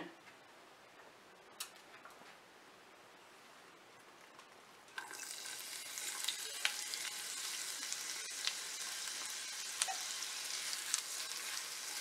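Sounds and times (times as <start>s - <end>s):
onion sizzling in hot oil: 5.0s - 12.0s.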